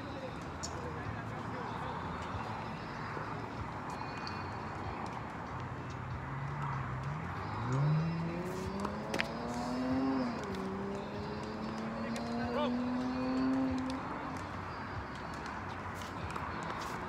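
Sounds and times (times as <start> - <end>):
vehicle engine accelerating: 5.9 - 14.6
traffic hiss: 14.5 - 17.0.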